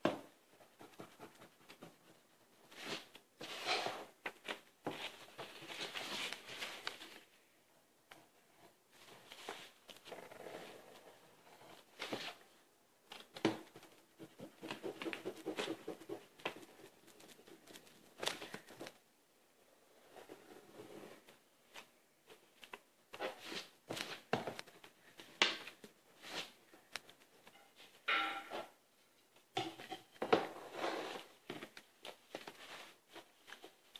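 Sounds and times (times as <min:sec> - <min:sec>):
pencil scratching on paper: 0:00.5 - 0:04.0, 0:14.1 - 0:17.9.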